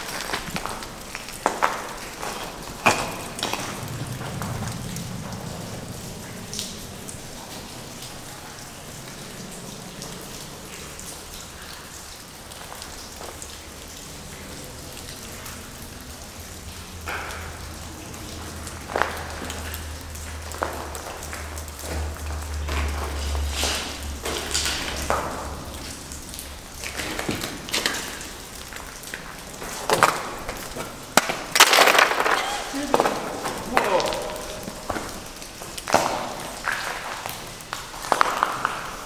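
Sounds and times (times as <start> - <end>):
water dripping on wet floor: 0.0 - 39.0.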